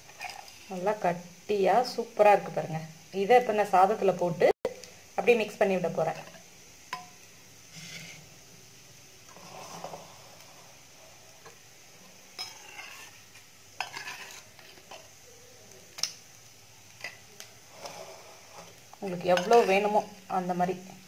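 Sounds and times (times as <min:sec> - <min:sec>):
spoon stirring mashed rice: 0:11.4 - 0:15.1.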